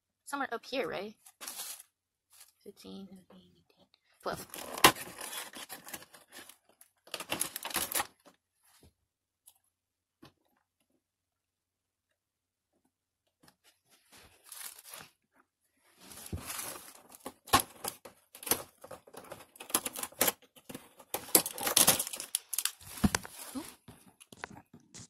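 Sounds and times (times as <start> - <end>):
cardboard tearing: 4.4 - 8.2, 14.4 - 15.2, 16.1 - 23.8.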